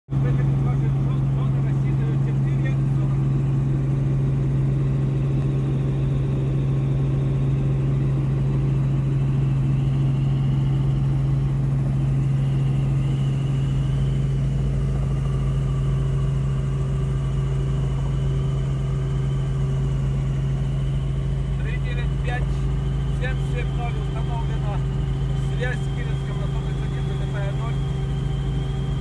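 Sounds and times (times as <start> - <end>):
helicopter drone inside cabin: 0.1 - 29.0
faint high whine: 0.2 - 29.0.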